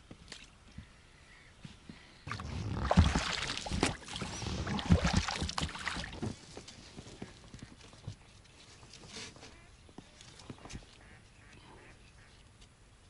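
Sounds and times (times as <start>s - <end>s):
water splashing: 2.3s - 6.4s
oar pulling through water: 2.3s - 9.7s.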